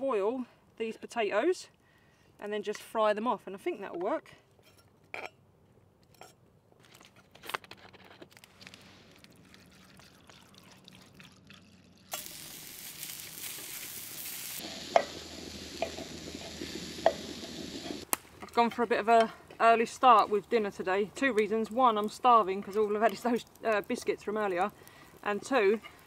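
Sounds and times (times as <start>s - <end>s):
water pouring into a pot: 8.8s - 18.0s
food sizzling in a pan: 12.0s - 18.0s.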